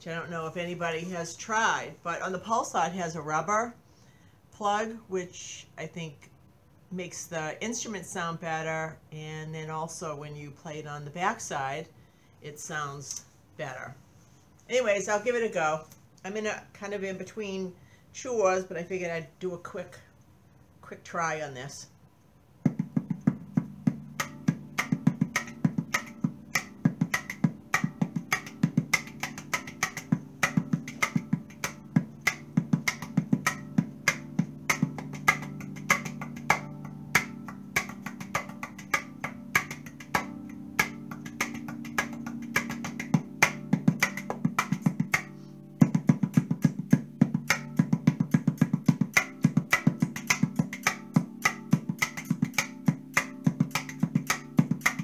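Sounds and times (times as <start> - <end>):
tongue drum hand drumming: 22.6 - 55.0.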